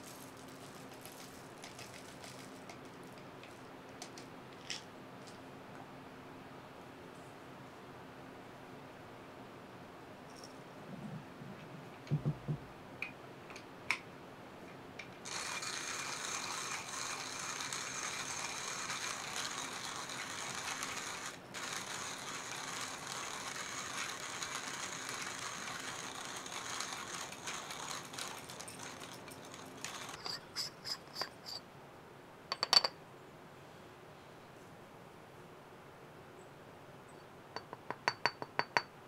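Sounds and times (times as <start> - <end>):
coffee grinder grinding beans: 0.0 - 4.1, 15.2 - 31.6.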